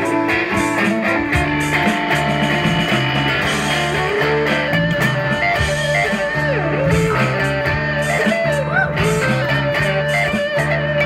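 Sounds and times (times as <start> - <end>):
bass line: 0.0 - 11.0
electric guitar lead with bends: 0.0 - 11.0.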